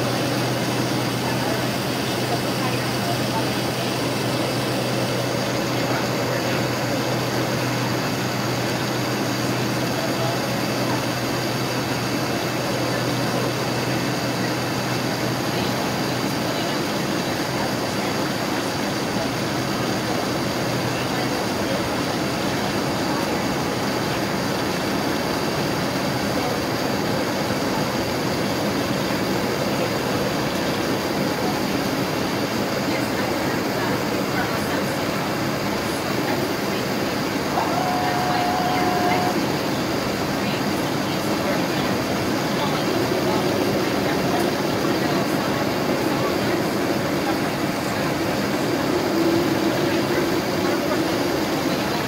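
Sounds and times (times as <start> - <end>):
airliner cabin engine rushing: 0.0 - 52.0
steady low hum: 0.0 - 52.0
faint high whine: 36.7 - 52.0.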